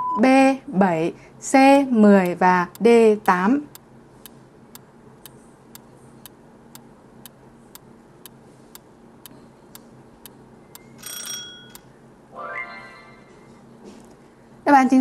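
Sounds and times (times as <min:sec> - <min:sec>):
clock ticking: 0:02.2 - 0:04.4.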